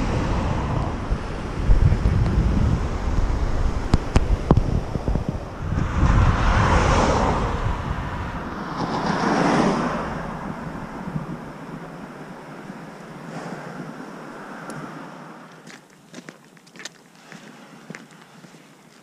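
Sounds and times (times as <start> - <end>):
passing car tyre noise: 0.0 - 15.9
wind rumbling on microphone: 0.0 - 18.0.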